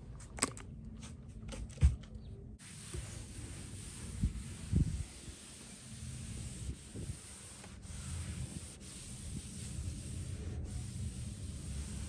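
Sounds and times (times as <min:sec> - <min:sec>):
cloth scrubbing a countertop: 0:02.6 - 0:12.0.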